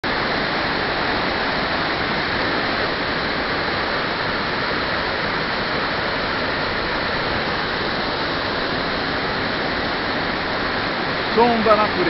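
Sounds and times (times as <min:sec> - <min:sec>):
waterfall pouring into pool: 0:00.0 - 0:12.0.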